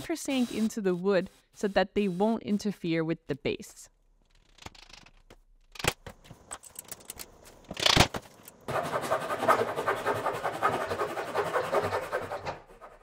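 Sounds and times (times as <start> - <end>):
handsaw cutting wood: 0.0 - 2.5, 8.7 - 13.0.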